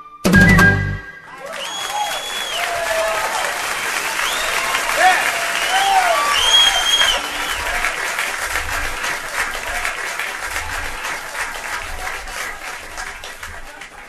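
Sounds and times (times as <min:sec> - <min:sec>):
audience applauding: 0:00.4 - 0:14.0
faint whoops: 0:01.3 - 0:07.9.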